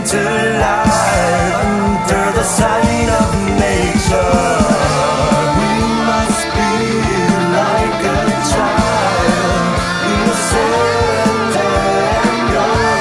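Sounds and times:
electric guitar lead bending pitch: 0.0s - 13.0s
metal band playing: 0.0s - 13.0s
kick drum beats: 0.8s - 6.3s.

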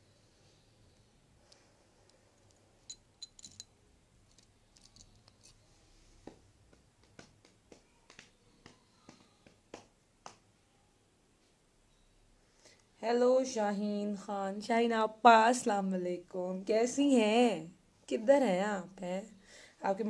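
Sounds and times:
small objects clicking: 4.3s - 5.6s
soft clicks and taps: 6.2s - 10.5s.

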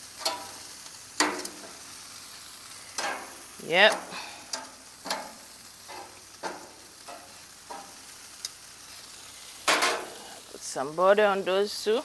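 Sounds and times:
chicken wings sizzling on a grill: 0.0s - 12.0s
tongs knocking and scraping: 0.2s - 0.6s, 3.0s - 3.3s, 3.9s - 8.6s, 9.6s - 10.2s.

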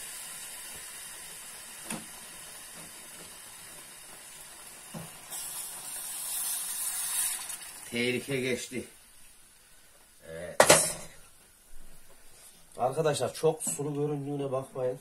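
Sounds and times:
syrup poured with steamy hiss: 0.0s - 10.4s
semolina sizzling in frying pan: 0.0s - 11.7s.

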